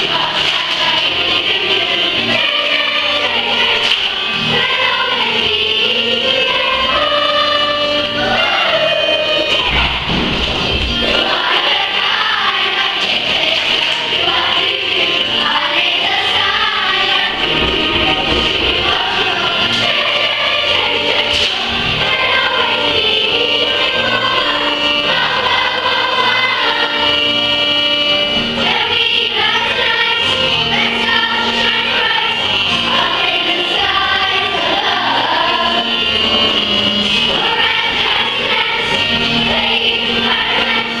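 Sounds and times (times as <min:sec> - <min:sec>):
children's choir singing: 0:00.0 - 0:41.0
musical accompaniment: 0:00.0 - 0:41.0.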